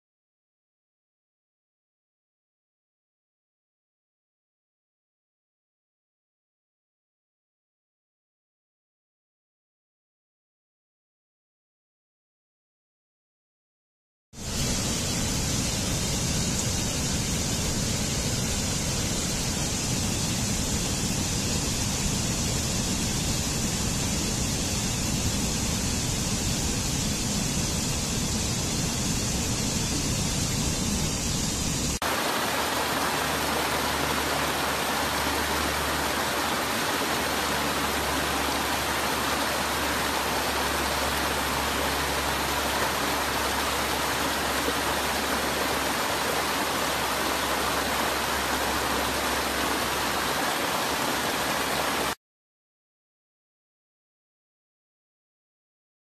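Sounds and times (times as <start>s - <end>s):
waterfall rushing: 14.4s - 52.2s.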